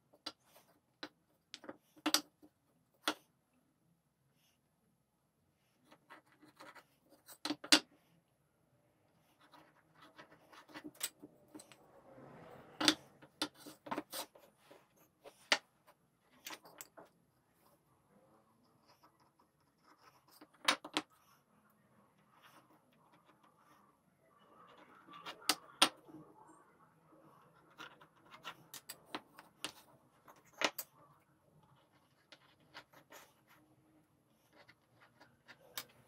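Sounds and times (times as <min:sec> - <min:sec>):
faint scratching: 0:09.0 - 0:36.0.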